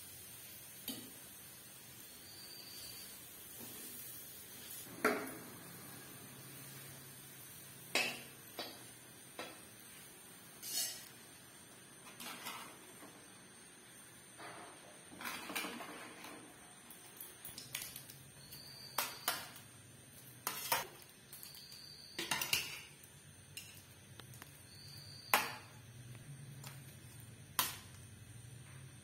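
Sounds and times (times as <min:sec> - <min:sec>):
metal spoon clinking on steel plates: 0:22.2 - 0:22.9.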